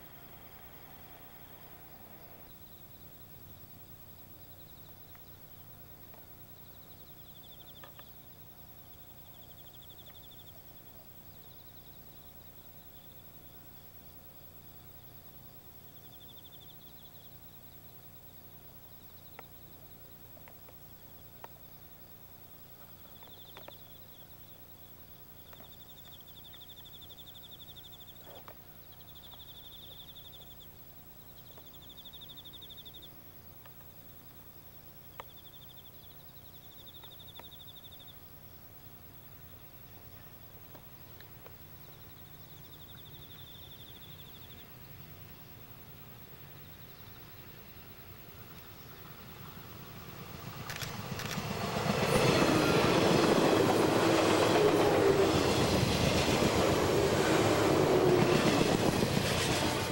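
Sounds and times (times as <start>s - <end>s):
sharp clicks: 50.6s - 51.5s.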